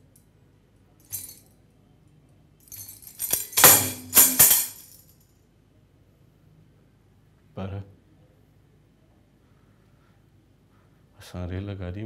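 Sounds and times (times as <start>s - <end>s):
metallic jingling: 1.1s - 1.4s, 2.6s - 5.1s.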